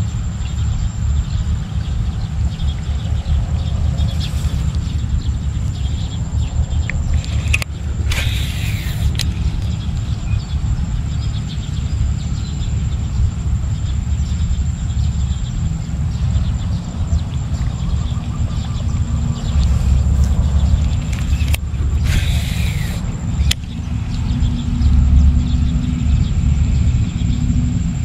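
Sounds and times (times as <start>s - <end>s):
steady low rumble: 0.0s - 28.0s
fishing reel paying out line: 4.0s - 5.1s, 7.1s - 9.8s, 19.7s - 23.7s.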